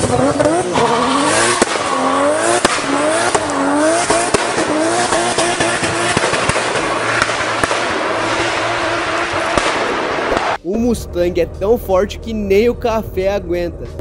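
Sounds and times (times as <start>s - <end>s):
car engine revving: 0.0s - 10.6s
sharp pops: 1.5s - 8.7s, 9.4s - 10.6s.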